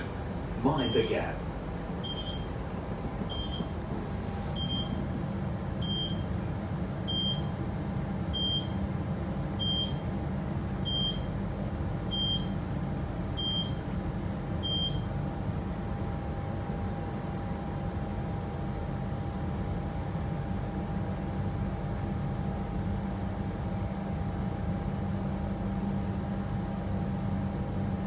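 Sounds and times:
train carriage low hum: 0.0 - 28.0
door warning beeps: 0.8 - 1.2, 2.0 - 2.5, 3.3 - 3.7, 4.6 - 5.0, 5.8 - 6.2, 7.1 - 7.5, 8.4 - 8.8, 9.6 - 10.0, 10.9 - 11.3, 12.1 - 12.5, 13.4 - 13.8, 14.6 - 15.1.

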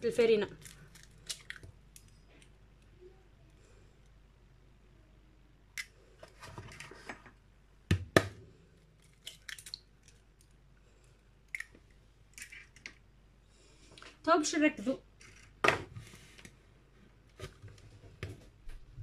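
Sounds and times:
shell crackling apart: 0.6 - 2.1
eggshells cracking on bowl rim: 9.0 - 10.3, 11.5 - 13.0.

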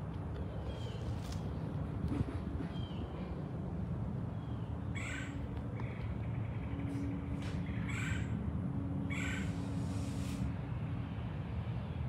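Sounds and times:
bird harsh calls: 4.4 - 8.4, 9.1 - 9.8.

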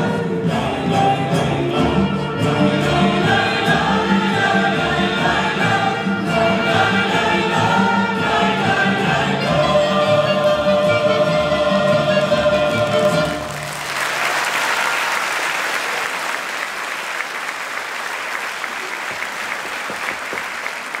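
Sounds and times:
audience applause: 12.8 - 21.0.

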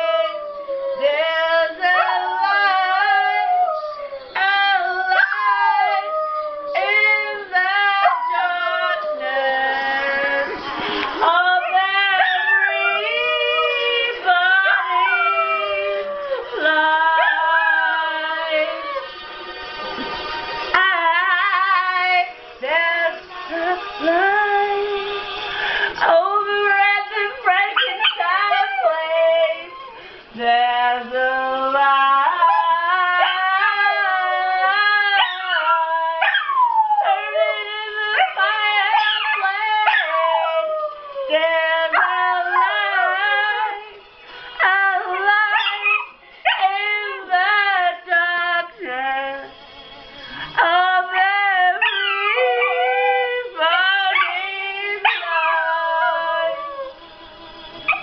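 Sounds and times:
dog howling: 0.0 - 10.5, 11.4 - 19.1, 27.5 - 30.0, 31.8 - 44.0, 44.6 - 47.9, 50.2 - 57.0, 57.8 - 58.0
woman singing: 0.0 - 19.1, 20.7 - 49.6, 50.3 - 58.0.

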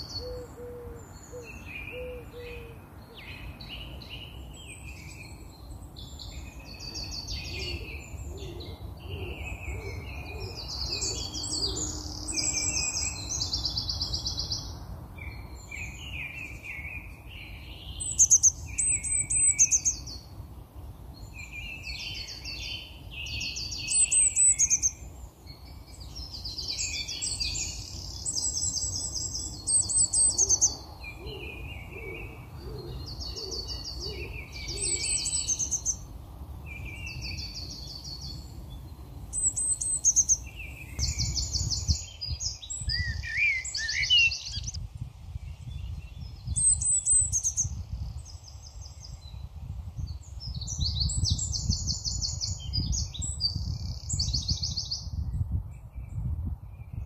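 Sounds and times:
birds twittering: 0.0 - 44.8
songbirds trilling: 0.0 - 55.2.

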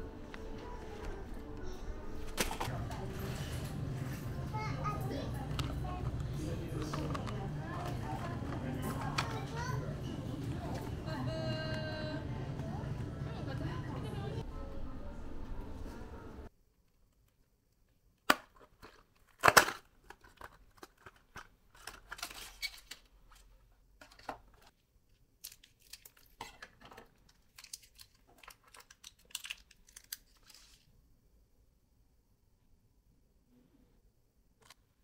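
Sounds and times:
wrapping crinkling and rustling: 18.9 - 30.9
packaging being torn open: 27.3 - 30.9.

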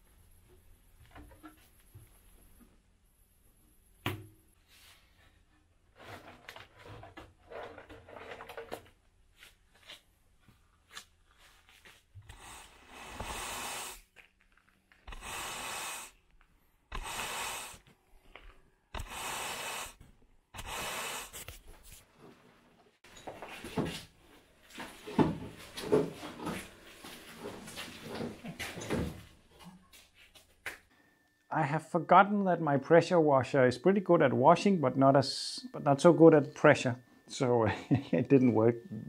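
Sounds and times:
push broom scrubbing concrete: 19.0 - 20.0.

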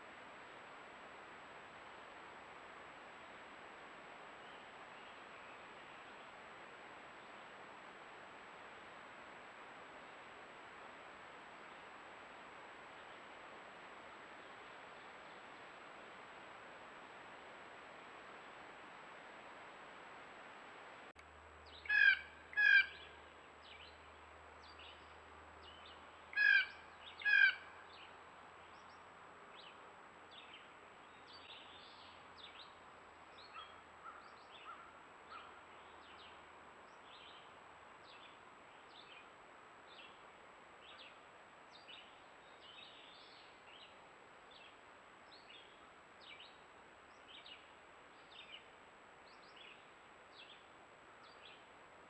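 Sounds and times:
blue jay harsh calls: 21.8 - 23.2, 26.3 - 27.8.

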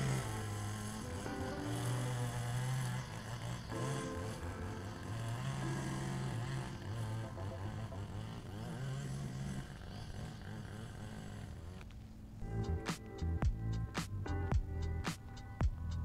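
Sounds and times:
small lawn equipment engine running: 0.0 - 16.0.

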